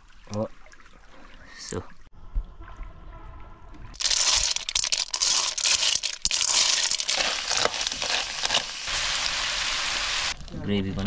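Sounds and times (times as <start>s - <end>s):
snails sizzling in a wok: 4.0s - 10.4s.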